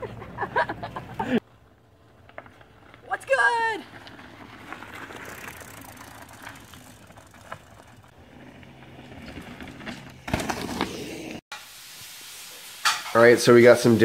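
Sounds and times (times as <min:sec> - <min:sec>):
tyres on dirt and leaves: 0:01.4 - 0:11.4
bike clicks and rattles: 0:03.9 - 0:11.2.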